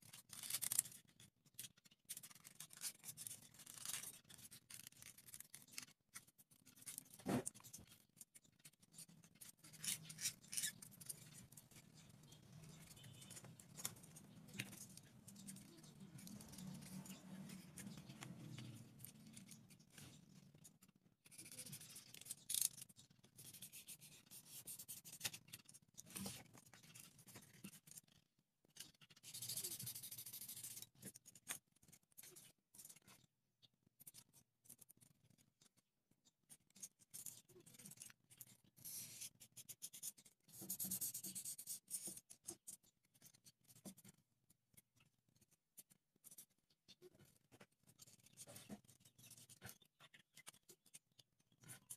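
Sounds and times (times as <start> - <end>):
knife scraping styrofoam: 9.0 - 11.4.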